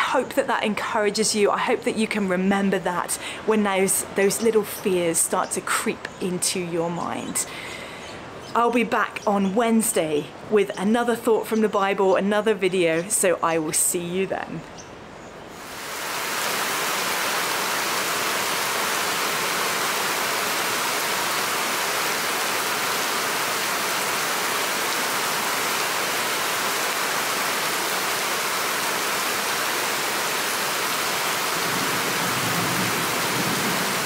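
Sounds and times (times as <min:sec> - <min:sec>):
heavy rain pouring: 0:15.5 - 0:34.0.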